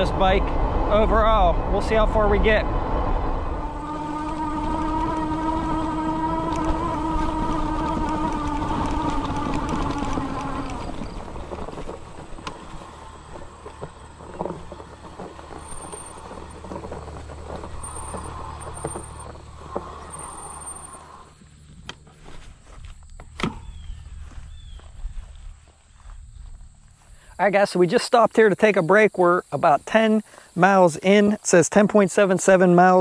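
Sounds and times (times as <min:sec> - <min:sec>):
wind rumble on microphone: 0:00.0 - 0:27.2
electric motor whine: 0:03.1 - 0:24.4
bike knocking on rough ground: 0:04.1 - 0:24.9.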